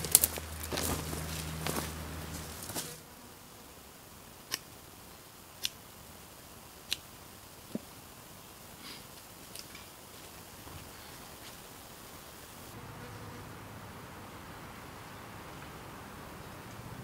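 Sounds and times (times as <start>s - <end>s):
footsteps rustling through bush: 0.0s - 3.0s, 9.4s - 12.6s.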